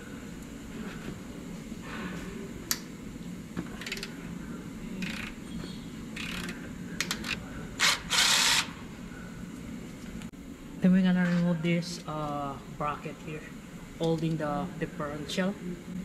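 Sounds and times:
cordless power ratchet running: 7.8 - 8.8.

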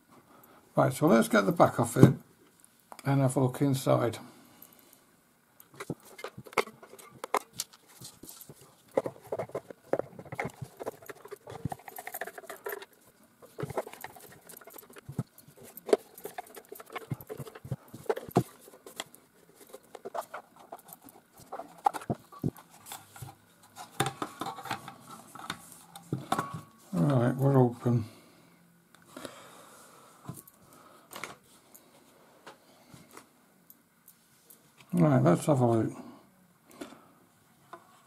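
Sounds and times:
plastic casing clicks and scrapes: 8.4 - 26.4.

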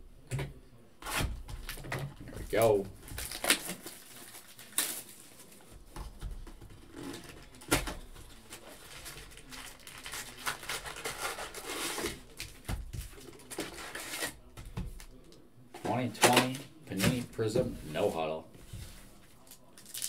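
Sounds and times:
foil packs rustling: 2.4 - 5.7, 7.1 - 14.4
box being unwrapped: 2.6 - 5.5, 8.4 - 12.6, 13.2 - 14.4.

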